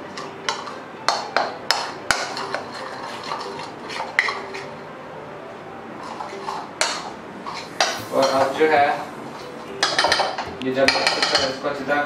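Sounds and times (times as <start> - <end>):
metal spoon clinking in bowl: 9.8 - 11.6.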